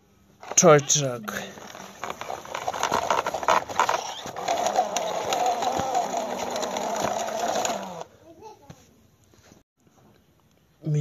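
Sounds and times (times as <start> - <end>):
toy truck wheels rattling on pavement: 0.4 - 8.1.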